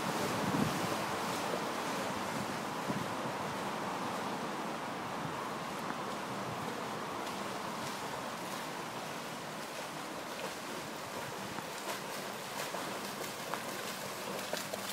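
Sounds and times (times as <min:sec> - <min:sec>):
river water running: 0:00.0 - 0:14.9
dog splashing while swimming: 0:10.2 - 0:14.9.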